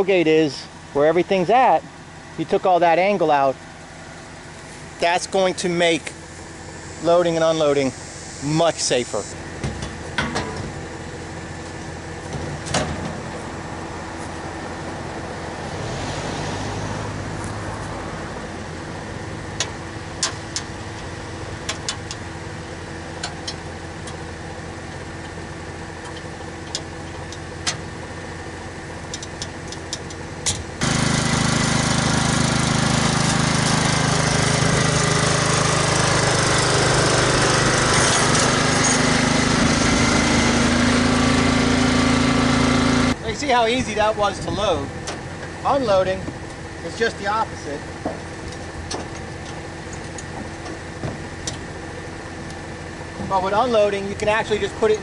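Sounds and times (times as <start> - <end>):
riding lawn mower engine: 0.0 - 55.0
truck engine humming: 0.0 - 55.0
metal ramps clanking: 9.6 - 11.0, 11.7 - 13.4, 29.0 - 40.7.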